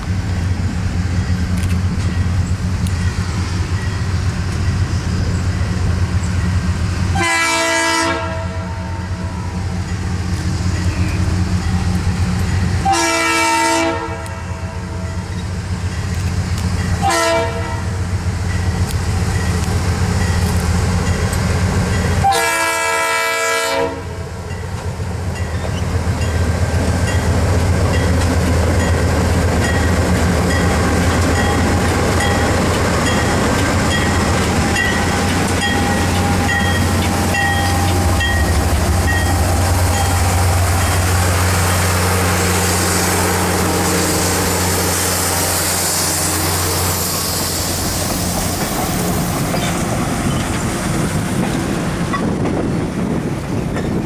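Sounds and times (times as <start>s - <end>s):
train wheels clicking over rail joints: 0.0s - 7.1s, 15.2s - 17.1s, 18.1s - 22.3s, 24.4s - 54.0s
train air horn blasts: 7.1s - 9.6s, 12.8s - 15.3s, 17.0s - 18.0s, 22.2s - 24.2s
diesel engines rumbling: 24.3s - 54.0s.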